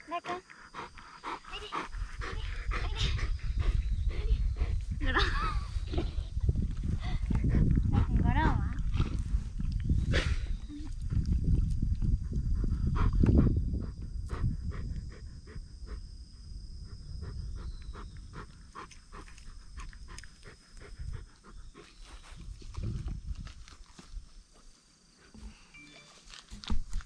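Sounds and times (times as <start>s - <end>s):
dog panting: 0.1s - 5.1s, 7.0s - 9.2s, 11.1s - 16.1s, 16.8s - 22.6s.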